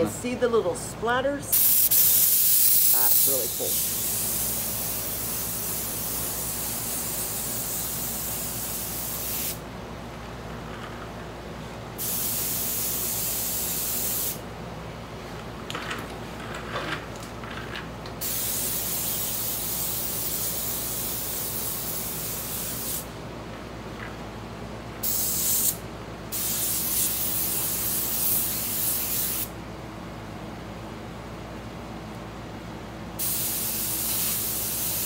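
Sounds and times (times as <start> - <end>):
steady low hum: 0.0 - 35.0
airbrush spraying air hiss: 1.5 - 9.6, 12.0 - 14.4, 18.2 - 23.1, 25.0 - 29.5, 33.2 - 35.0.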